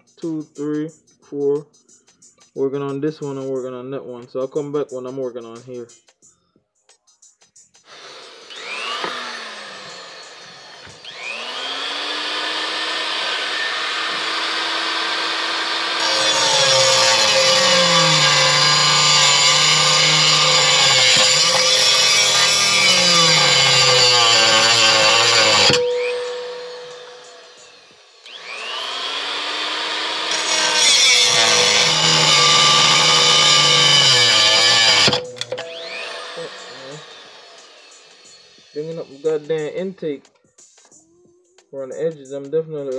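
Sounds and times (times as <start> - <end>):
rotary tool grinding metal: 7.9 - 39.7.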